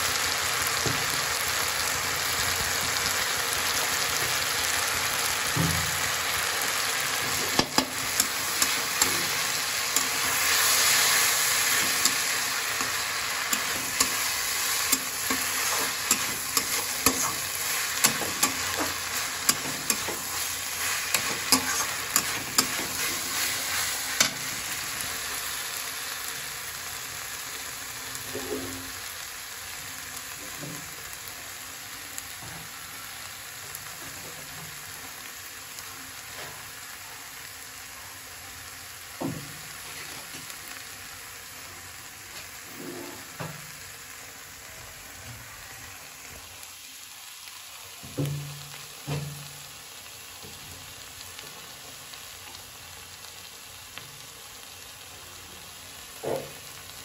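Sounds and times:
vegetables sizzling in a pan: 0.0 - 57.0
metal spatula scraping pan: 7.5 - 24.5.

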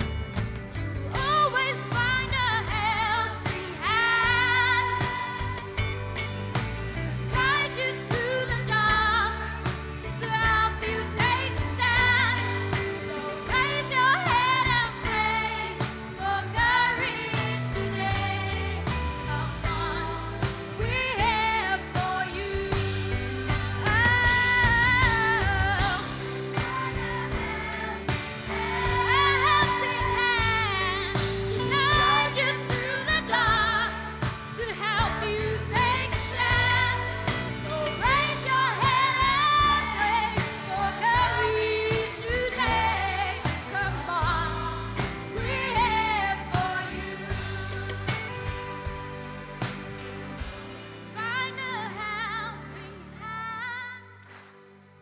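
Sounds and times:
band playing live: 0.0 - 55.0
lead singer with vibrato: 7.3 - 49.0
choir singing: 10.8 - 49.0.

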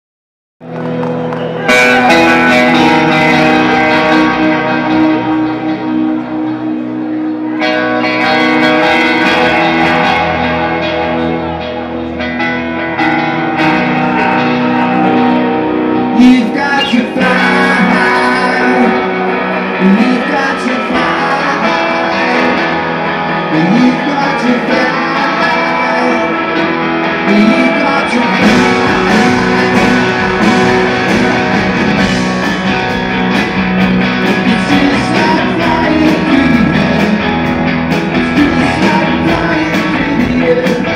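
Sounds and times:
electric guitars playing: 0.6 - 40.9
live rock band: 0.6 - 40.9.

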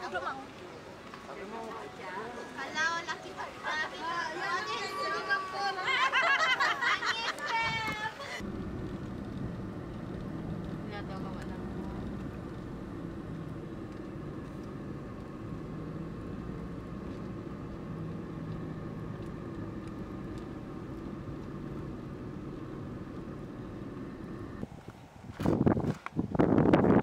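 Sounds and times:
road noise: 0.0 - 27.0
car engine humming: 8.2 - 25.0.

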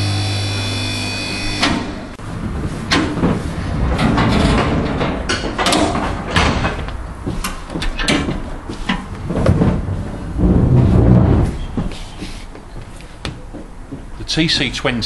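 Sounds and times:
electric motor humming: 0.0 - 2.1
metal latches clanking: 2.9 - 9.1.

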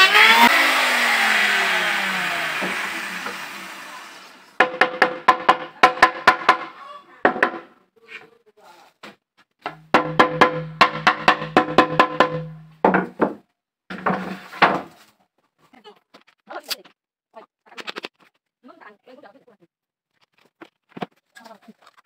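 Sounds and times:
drum beats: 4.6 - 6.7, 9.7 - 13.2
percussive music: 9.7 - 12.9.

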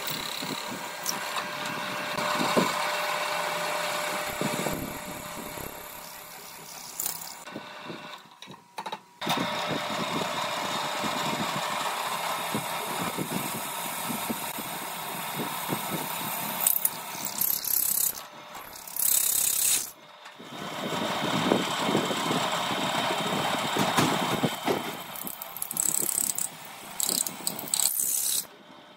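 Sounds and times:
drill press boring through steel: 0.0 - 7.5, 11.4 - 20.0, 23.3 - 28.5.

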